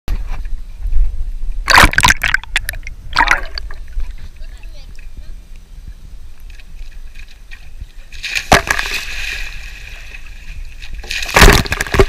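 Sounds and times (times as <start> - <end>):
splash into water: 1.7 - 3.8, 8.1 - 12.0
water sloshing and fizzing: 7.0 - 12.0.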